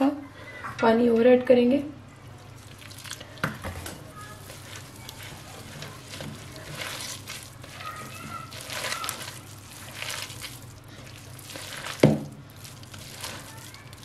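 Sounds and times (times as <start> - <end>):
hand squelching wet batter: 2.4 - 14.0.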